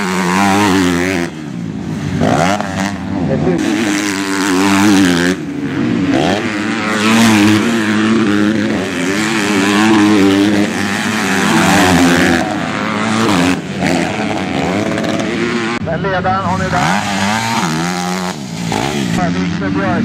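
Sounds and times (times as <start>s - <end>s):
motocross motorcycles revving: 0.0s - 20.0s.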